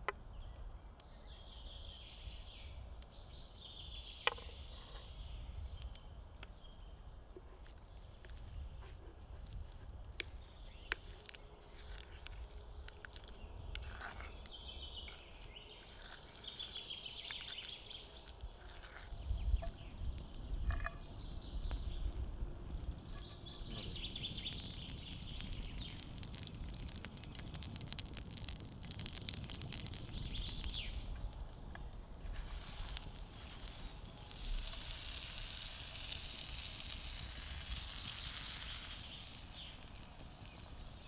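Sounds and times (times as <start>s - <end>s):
wood fire crackling and popping: 7.6s - 41.0s
butter sizzling in a pan: 9.7s - 41.0s
birds chirping: 12.8s - 27.9s, 29.8s - 32.0s.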